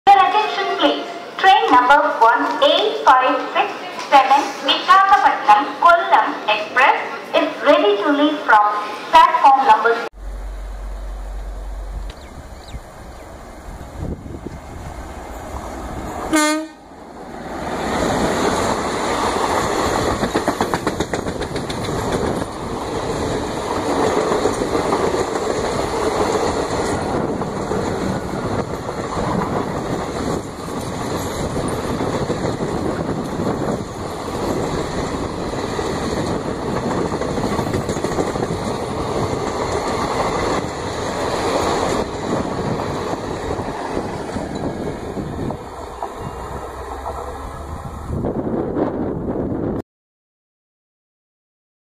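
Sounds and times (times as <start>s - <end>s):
train wheels rushing on rail: 10.2s - 49.8s
clickety-clack over rail joints: 17.8s - 48.4s.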